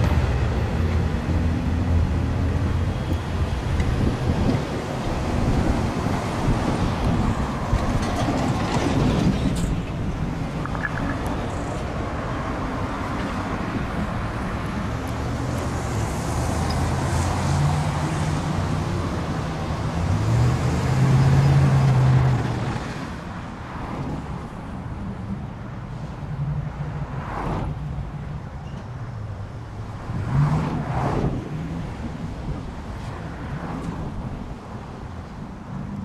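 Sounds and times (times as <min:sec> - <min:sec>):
diesel train engine drone: 0:00.0 - 0:30.4
road traffic rumble: 0:00.0 - 0:36.0.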